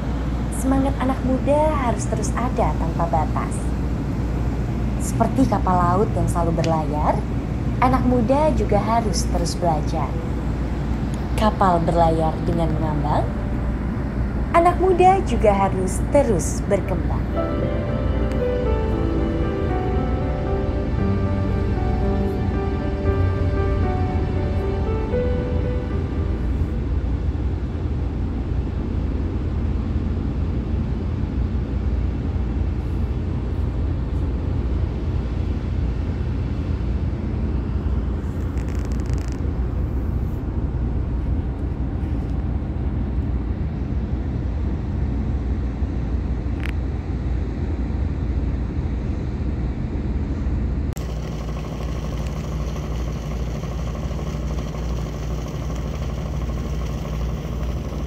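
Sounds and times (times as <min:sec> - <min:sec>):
boat engine rumble: 0:50.9 - 0:58.0.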